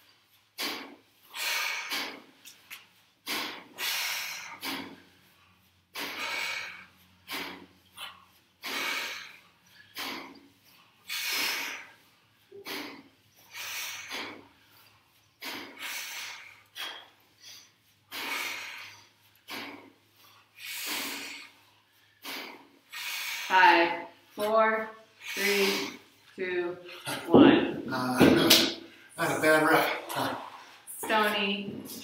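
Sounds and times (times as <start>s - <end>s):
sharp hissing exhalations: 0.6s - 2.4s, 3.2s - 5.3s, 6.0s - 23.6s, 25.1s - 26.2s.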